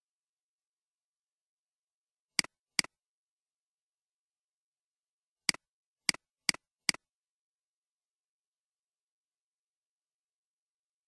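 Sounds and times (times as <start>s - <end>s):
computer mouse clicks: 2.4s - 3.0s, 5.5s - 7.0s.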